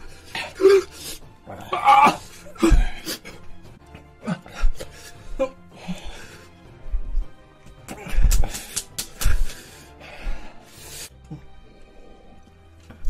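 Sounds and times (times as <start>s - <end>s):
background music: 0.0s - 13.0s
men coughing and gasping: 1.8s - 6.2s, 7.8s - 9.8s.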